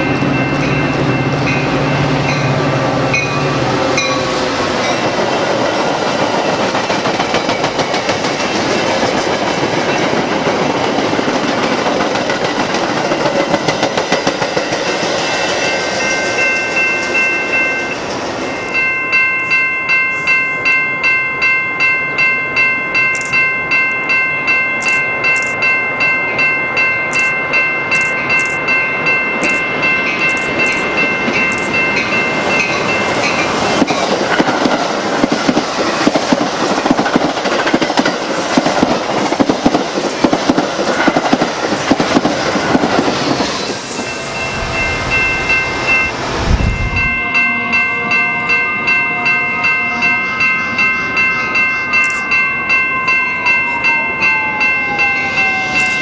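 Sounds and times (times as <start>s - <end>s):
railroad crossing bell ringing: 0.0s - 10.7s, 14.3s - 34.7s, 42.5s - 56.0s
train wheels rushing and clattering: 0.0s - 18.8s, 27.9s - 47.2s.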